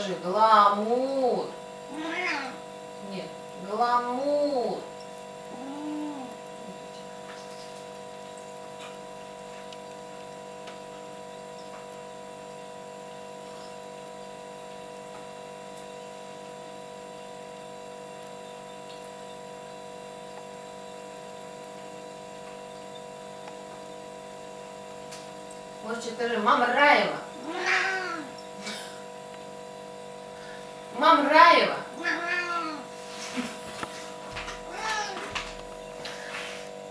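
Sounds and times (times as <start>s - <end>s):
electrical hum: 0.0s - 36.9s
cat meowing: 1.9s - 2.6s, 27.4s - 28.3s, 32.0s - 32.8s, 34.6s - 35.3s.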